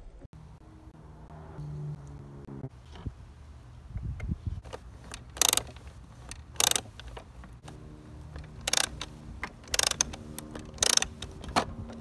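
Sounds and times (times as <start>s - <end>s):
plastic ratchet clicking: 4.7s - 7.2s, 8.4s - 12.0s.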